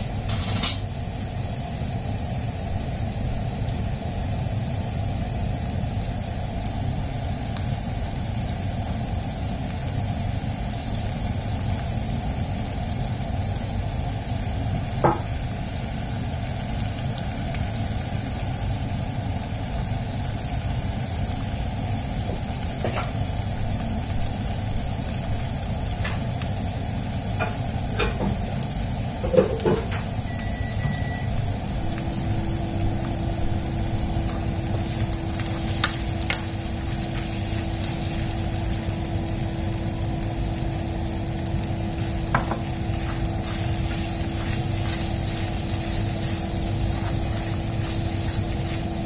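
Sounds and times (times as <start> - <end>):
meat sizzling in a pan: 0.0 - 49.0
steady low rumble: 31.2 - 40.7, 41.3 - 49.0.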